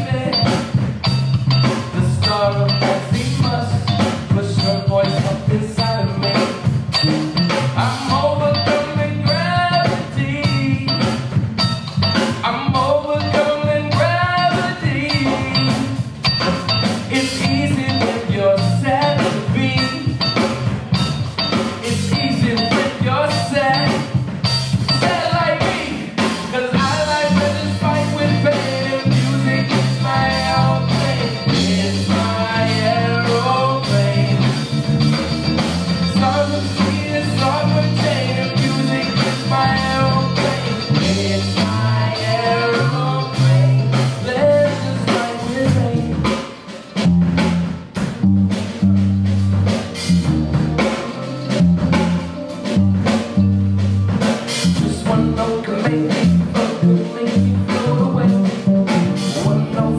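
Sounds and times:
person singing: 0.0s - 0.8s, 1.6s - 11.3s, 12.2s - 16.1s, 17.0s - 20.9s, 21.7s - 24.2s, 24.9s - 34.8s, 36.0s - 46.4s, 54.7s - 59.9s
drum kit beat: 0.0s - 59.9s
electric bass line: 0.0s - 59.9s
electric guitar: 0.0s - 59.9s.

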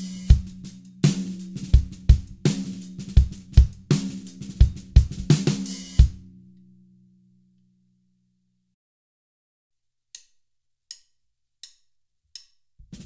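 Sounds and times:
cymbal strokes: 0.0s - 6.2s
bass drum: 0.0s - 6.3s.

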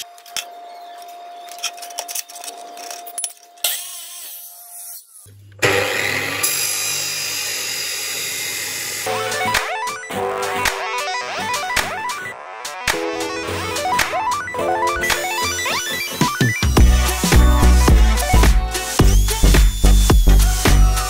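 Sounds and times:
chop saw grinding steel: 3.6s - 9.1s
motor hum: 13.7s - 21.0s.

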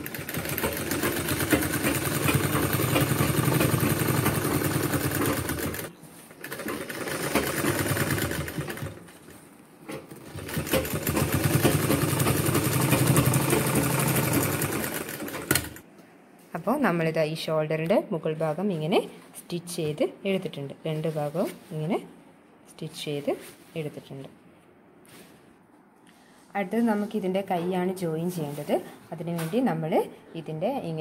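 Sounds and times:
sewing machine stitching: 0.0s - 15.8s.

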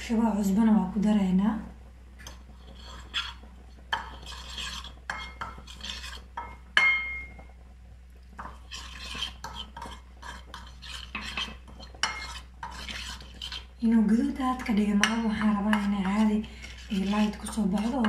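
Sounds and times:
spoon scraping ceramic bowl: 2.2s - 7.3s, 8.4s - 13.8s, 14.6s - 18.0s.

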